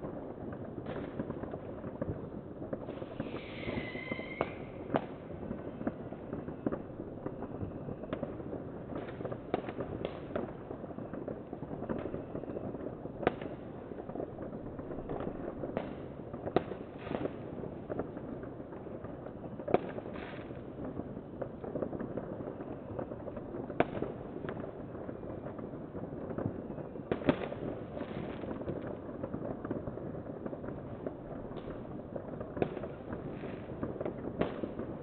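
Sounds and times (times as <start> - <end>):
distant fireworks crackle: 0.0 - 35.0
falling whistle: 3.2 - 4.7.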